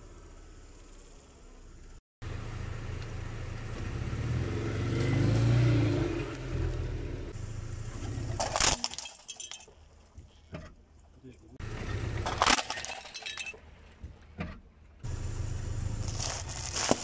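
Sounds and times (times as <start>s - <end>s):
car engine running: 14.0s - 17.0s
crunching under a tyre: 15.8s - 17.0s.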